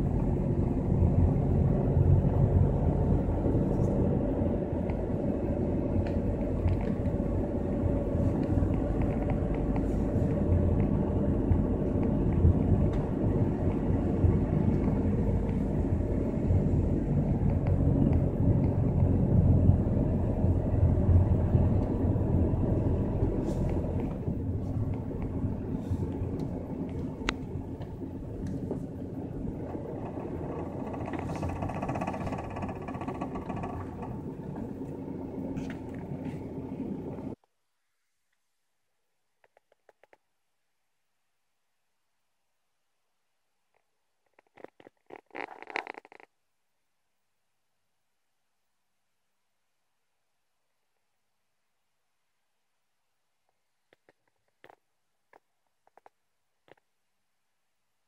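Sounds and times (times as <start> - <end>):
car engine and road rumble: 0.0 - 37.7, 41.8 - 47.6.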